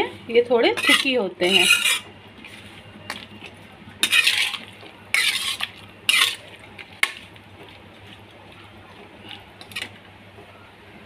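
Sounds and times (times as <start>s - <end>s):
metal ladle scraping a pot: 0.7s - 8.2s.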